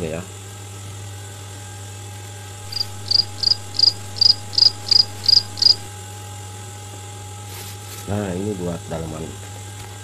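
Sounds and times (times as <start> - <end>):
steady low hum: 2.4 - 6.0
cricket chirping: 2.6 - 5.9.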